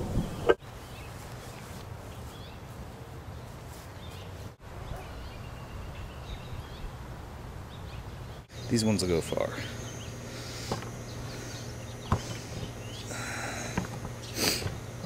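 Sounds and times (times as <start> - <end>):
low steady rumble: 6.2 - 15.0.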